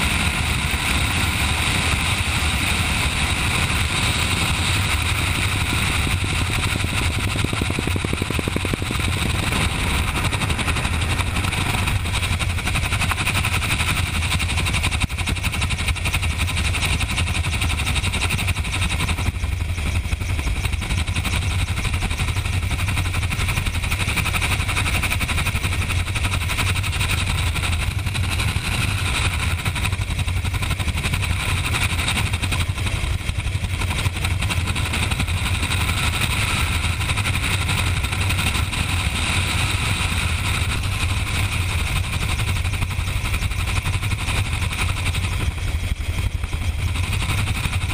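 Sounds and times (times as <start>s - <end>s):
wind noise rushing: 0.0s - 17.3s
helicopter rotor and engine drone: 0.0s - 47.9s.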